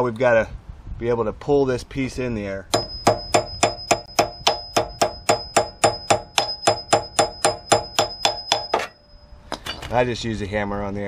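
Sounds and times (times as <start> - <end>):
hammer striking steel bolt: 2.7 - 9.0.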